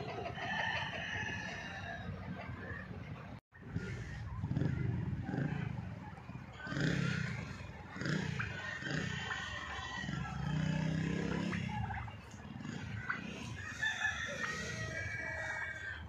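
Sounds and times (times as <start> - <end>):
chickens clucking: 0.0 - 16.0
rooster crowing: 0.3 - 2.1, 13.6 - 16.0.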